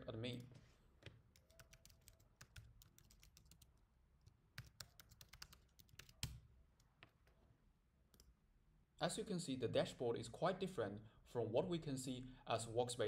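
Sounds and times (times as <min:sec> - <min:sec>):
keyboard typing: 0:01.3 - 0:03.8, 0:04.5 - 0:06.9.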